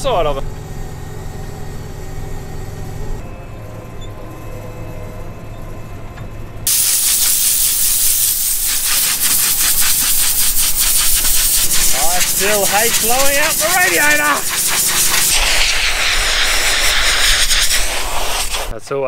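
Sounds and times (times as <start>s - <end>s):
combine harvester engine hum: 0.0s - 19.0s
compressed air hissing: 6.7s - 19.0s.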